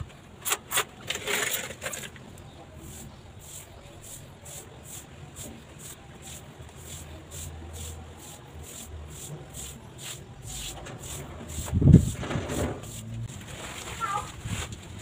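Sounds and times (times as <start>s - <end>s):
sponge swishing over tiles: 2.8s - 14.7s.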